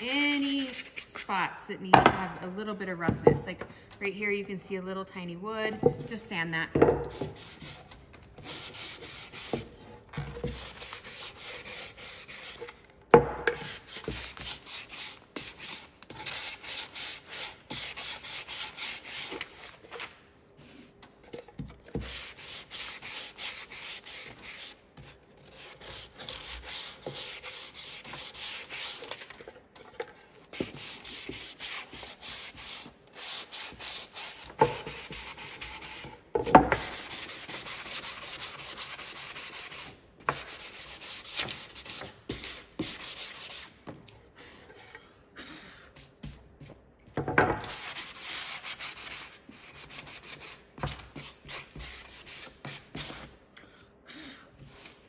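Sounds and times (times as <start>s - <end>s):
sanding block scratching wood: 0.0s - 1.4s, 7.0s - 12.8s, 13.5s - 19.7s, 21.9s - 29.3s, 30.5s - 43.8s, 47.6s - 53.3s.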